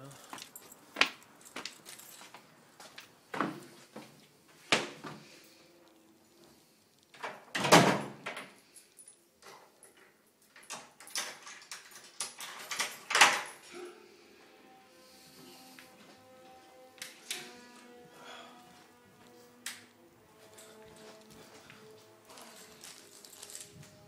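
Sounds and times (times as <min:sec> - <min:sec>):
interior doors opening and closing: 0:07.1 - 0:08.6, 0:09.4 - 0:13.8.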